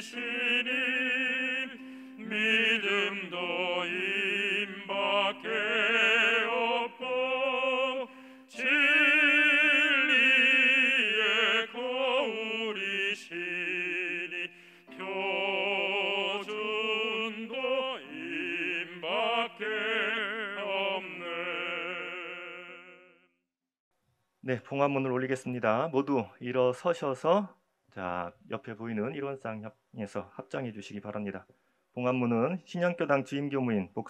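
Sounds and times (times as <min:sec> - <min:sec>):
person singing a hymn: 0:00.0 - 0:23.1.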